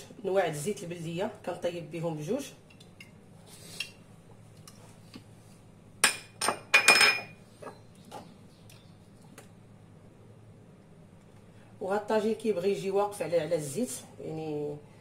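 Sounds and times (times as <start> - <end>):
glass bottles clinking: 6.0 - 7.4.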